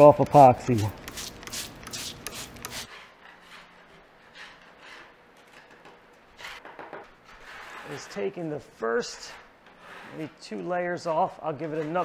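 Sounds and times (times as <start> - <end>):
scraper rasping paint off wood: 0.4 - 5.1.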